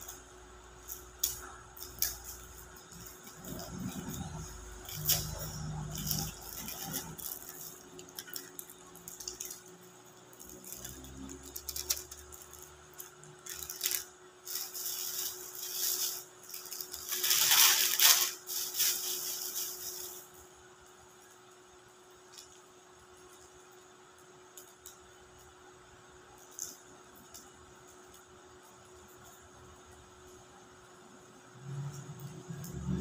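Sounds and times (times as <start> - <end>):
plastic bags rustling: 0.0 - 20.5.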